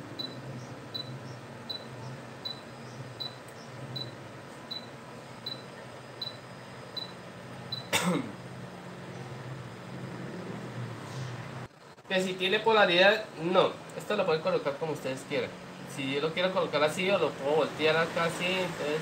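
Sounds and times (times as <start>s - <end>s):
hot-air blower hum: 0.0s - 19.0s.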